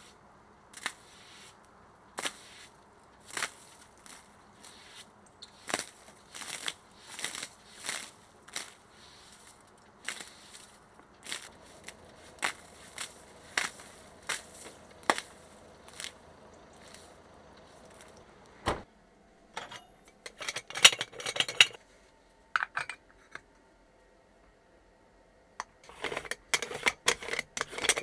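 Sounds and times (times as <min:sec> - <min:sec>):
tool scraping snow: 0:00.8 - 0:01.6, 0:02.2 - 0:18.1
spoon clinking in metal pot: 0:19.6 - 0:21.8.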